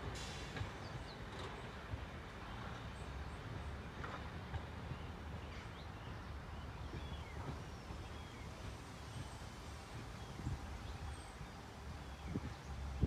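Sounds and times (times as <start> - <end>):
small birds chirping: 4.8 - 13.0.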